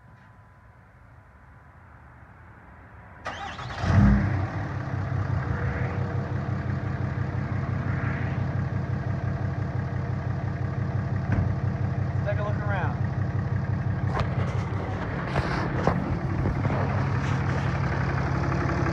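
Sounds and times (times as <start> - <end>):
diesel engine starting and idling: 3.2 - 18.9.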